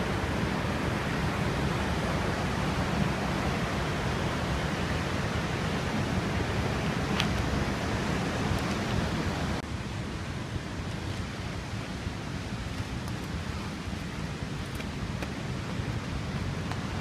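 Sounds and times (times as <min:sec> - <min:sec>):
waterfall rushing: 0:00.0 - 0:17.0.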